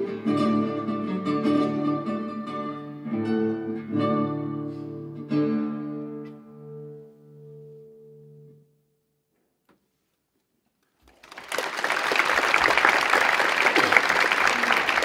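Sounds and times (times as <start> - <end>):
classical guitar chord ringing: 0.0 - 8.9
audience applause: 11.0 - 15.0.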